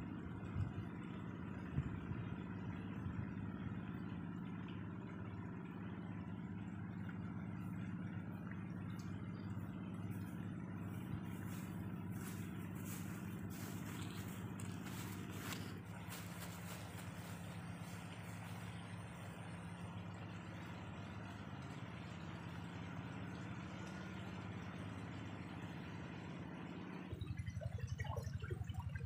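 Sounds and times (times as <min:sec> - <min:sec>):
motor running steadily: 0:00.0 - 0:29.0
footsteps on grass: 0:10.1 - 0:19.6.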